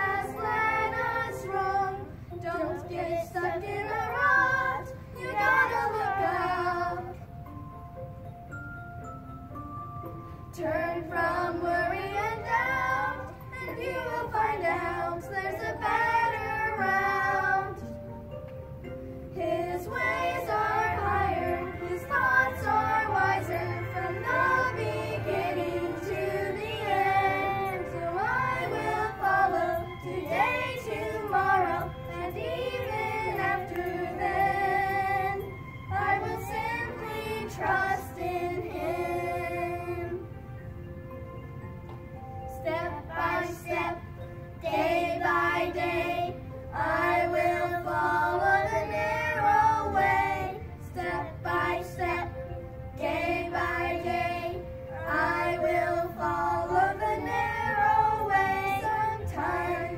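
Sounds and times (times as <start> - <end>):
children singing: 0.0 - 7.2, 10.5 - 18.0, 19.4 - 40.4, 42.6 - 59.9.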